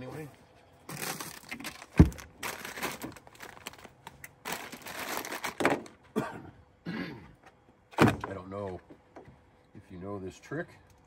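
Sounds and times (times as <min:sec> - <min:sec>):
crinkly material rustling: 0:00.9 - 0:05.9.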